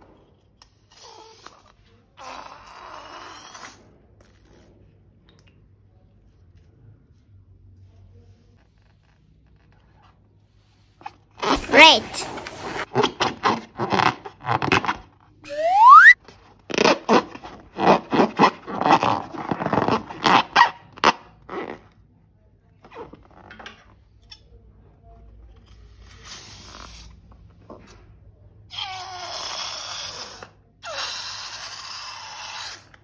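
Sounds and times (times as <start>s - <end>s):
balloon squeal: 11.4s - 12.8s, 15.5s - 20.7s
rubber balloons squeaking: 11.4s - 21.8s.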